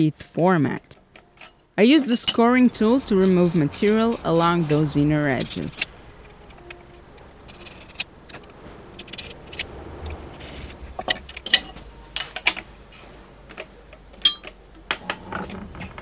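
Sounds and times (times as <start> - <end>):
knife scraping aluminium: 1.2 - 6.8, 7.5 - 8.4.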